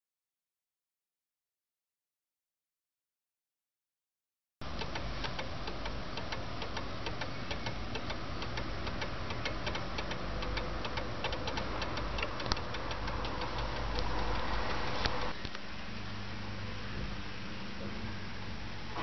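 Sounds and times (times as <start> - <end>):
pendulum clock ticking: 4.6 - 15.4
steady hiss: 4.6 - 16.3.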